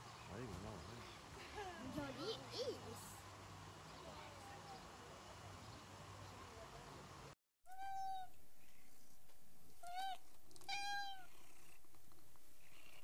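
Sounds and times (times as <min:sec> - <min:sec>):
cat meowing: 0:07.7 - 0:08.3, 0:09.8 - 0:11.4.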